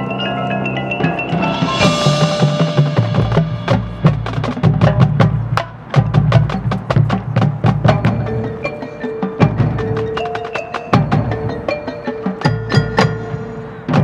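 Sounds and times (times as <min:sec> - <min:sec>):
marching band playing: 0:00.0 - 0:14.0
sharp drum and mallet strikes: 0:00.9 - 0:07.1
cymbal crash: 0:01.0 - 0:04.9.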